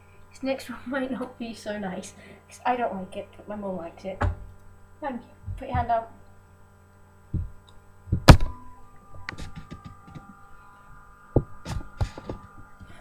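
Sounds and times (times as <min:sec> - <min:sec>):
microphone handling knocks: 0:05.5 - 0:06.0, 0:07.3 - 0:08.6, 0:09.3 - 0:10.3.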